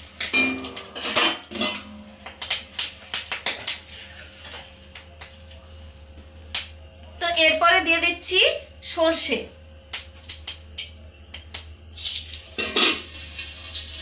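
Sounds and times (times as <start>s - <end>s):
mustard seeds popping in hot oil: 0.0s - 3.8s.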